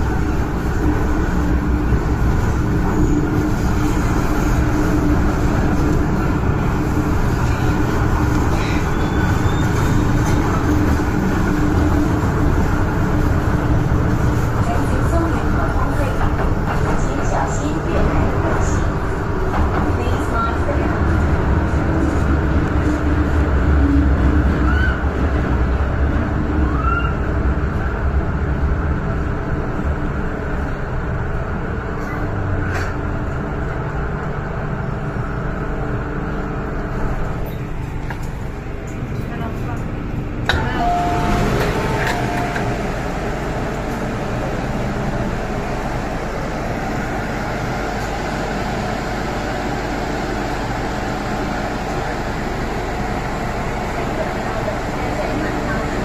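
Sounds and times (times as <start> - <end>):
train wheels rumbling on rail: 0.0 - 56.0
train wheel squeals: 8.5 - 10.6.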